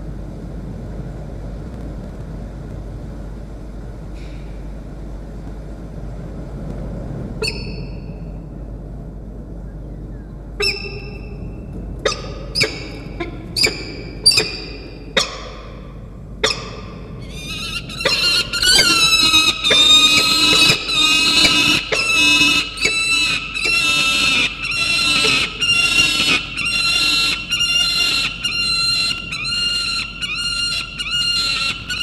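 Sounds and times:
falcon piercing calls: 0:07.4 - 0:08.0, 0:10.6 - 0:11.4, 0:12.0 - 0:32.0
harsh squawking: 0:12.0 - 0:15.8, 0:16.4 - 0:32.0.

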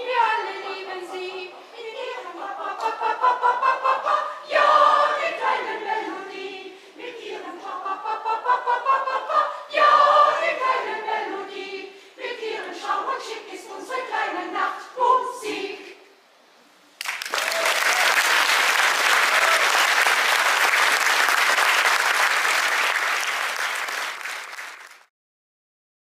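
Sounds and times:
mixed choir singing: 0:00.0 - 0:16.1
audience applause: 0:17.0 - 0:25.1.

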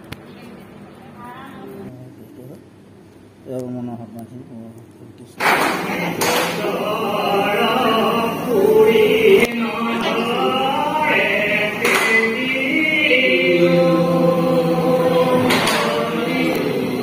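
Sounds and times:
slow chant-like devotional singing: 0:05.4 - 0:17.0.

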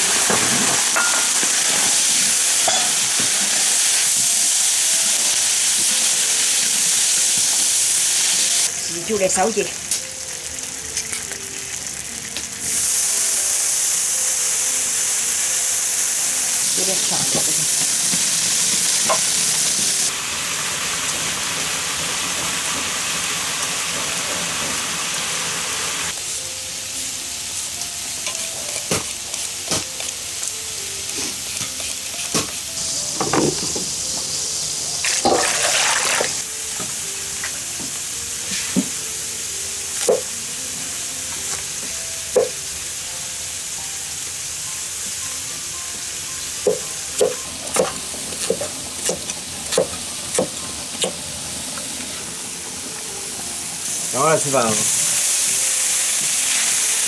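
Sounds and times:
food sizzling in a wok: 0:00.0 - 0:57.0.

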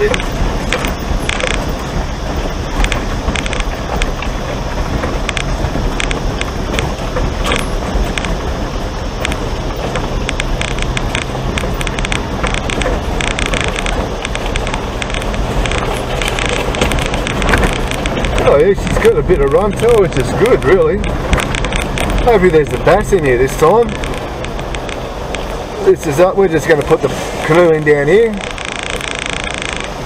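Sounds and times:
vehicle body rattling: 0:00.0 - 0:30.0
vehicle engine hum: 0:00.0 - 0:30.0
tyres knocking on stones: 0:09.2 - 0:25.5.

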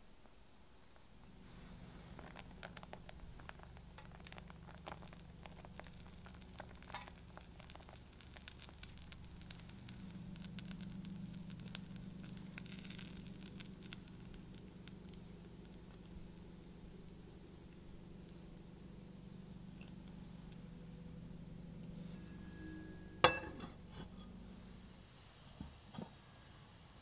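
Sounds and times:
low steady hum: 0:00.0 - 0:27.0
soft rustle: 0:00.2 - 0:17.1
cheese ticking onto pizza: 0:02.3 - 0:16.2.

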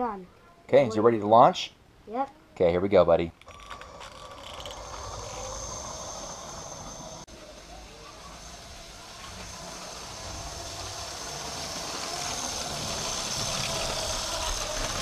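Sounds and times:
plastic wheels rolling on track: 0:03.4 - 0:15.0
toy train motor whirring: 0:03.4 - 0:15.0.

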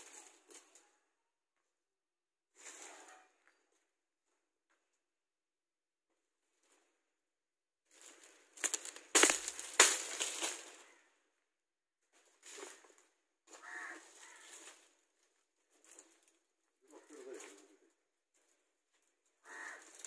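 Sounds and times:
dry palm fronds rustling: 0:02.6 - 0:03.1, 0:07.9 - 0:11.0, 0:12.1 - 0:16.4, 0:19.4 - 0:20.0
sharp cracks of fronds: 0:07.9 - 0:11.1, 0:12.4 - 0:15.0, 0:19.4 - 0:20.0.

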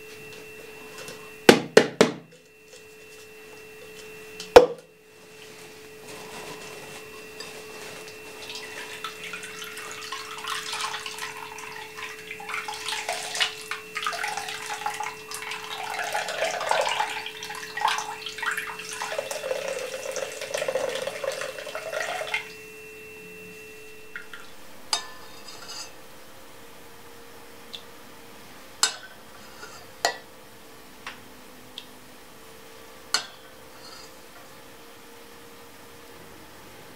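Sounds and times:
faint steady hum: 0:00.0 - 0:36.9
liquid trickling into a bowl: 0:08.4 - 0:22.5.

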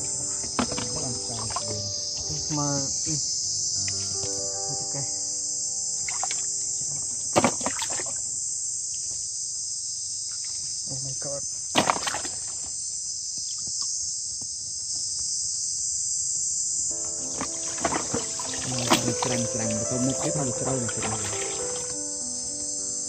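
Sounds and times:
water splashing: 0:00.0 - 0:03.2, 0:06.0 - 0:08.4, 0:11.7 - 0:12.6, 0:17.2 - 0:22.0
insects buzzing: 0:00.0 - 0:23.0.

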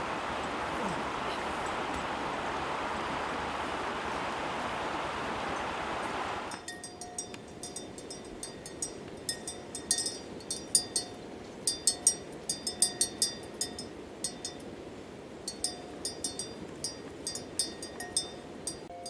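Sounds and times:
metal animal bell clinking: 0:06.6 - 0:14.7, 0:15.5 - 0:19.0.

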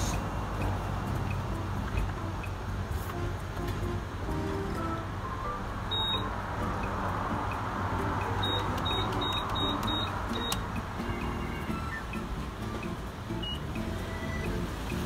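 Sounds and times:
broad rushing noise: 0:00.0 - 0:15.0
keypad beeps: 0:05.9 - 0:15.0.

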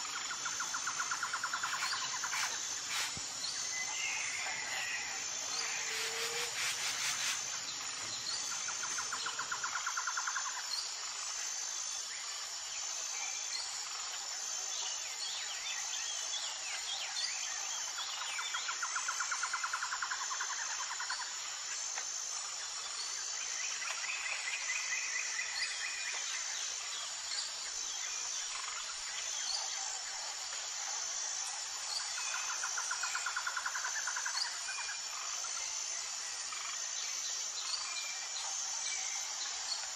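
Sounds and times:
rhythmic insect trilling: 0:00.0 - 0:12.5, 0:28.5 - 0:39.9
insects chirping: 0:00.0 - 0:39.9.

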